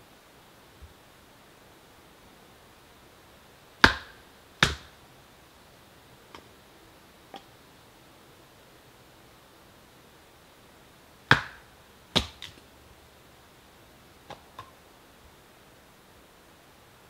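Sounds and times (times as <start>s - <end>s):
chopping strikes into wood: 3.8s - 4.9s, 11.3s - 12.6s.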